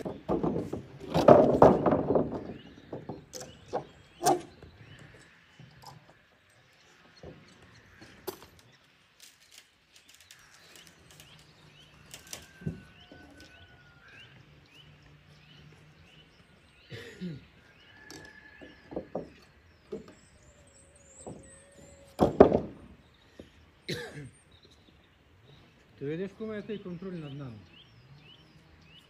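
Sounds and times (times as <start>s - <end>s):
knocks and clunks from handling: 0.0s - 5.2s, 18.0s - 20.3s, 21.1s - 23.5s
songbird chirping: 0.0s - 29.0s.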